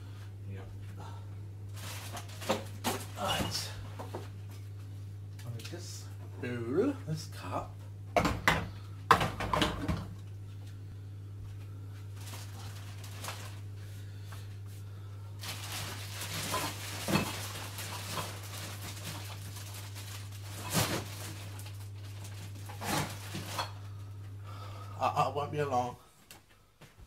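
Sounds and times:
dishes clinking and knocking: 8.2 - 10.1
low hum: 10.0 - 25.4.

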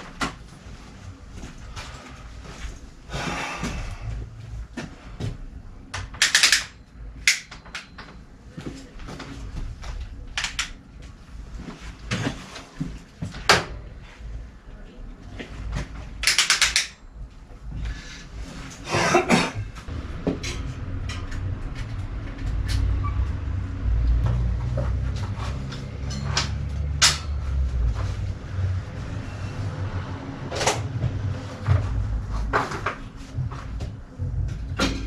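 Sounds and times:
tools and bike parts clattering: 5.2 - 10.8, 15.7 - 17.0, 17.7 - 23.5, 24.2 - 28.3, 31.6 - 35.0
low rumble: 19.6 - 35.0.

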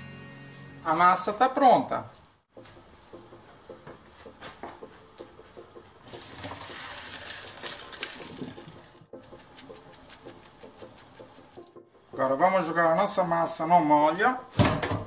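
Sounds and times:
pot knocking and clinking: 4.8 - 12.4
water pouring into colander: 6.1 - 9.0.

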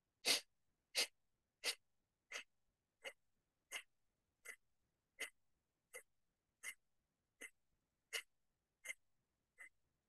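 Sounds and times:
forceful exhalations through nose: 0.2 - 2.4.

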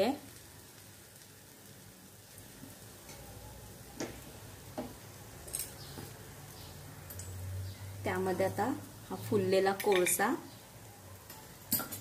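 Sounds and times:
hot pan ticks and crackles: 0.0 - 10.4
low hiss: 0.0 - 12.0.

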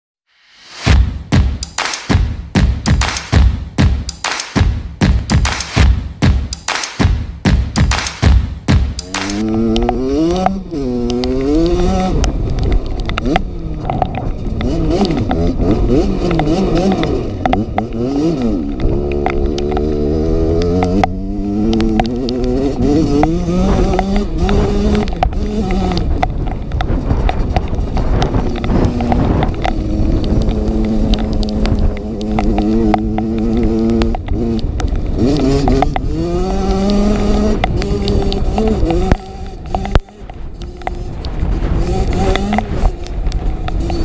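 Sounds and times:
knocks from motorcycle: 0.9 - 10.5
two-stroke motorcycle engine revving: 2.6 - 44.0.

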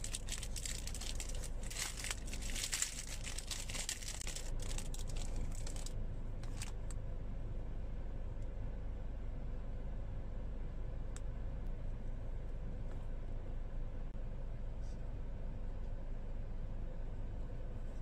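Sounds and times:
plastic wrapper crinkling: 0.0 - 6.8.

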